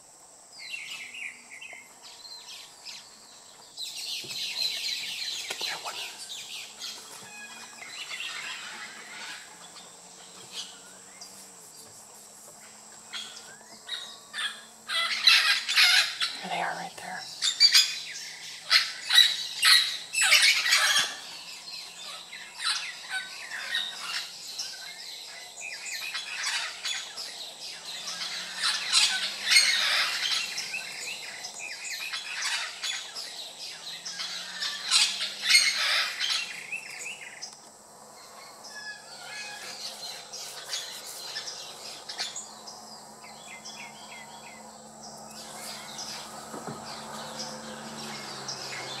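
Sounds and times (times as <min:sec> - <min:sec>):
parrots squawking: 0:14.4 - 0:18.0, 0:28.1 - 0:30.7, 0:34.2 - 0:36.6.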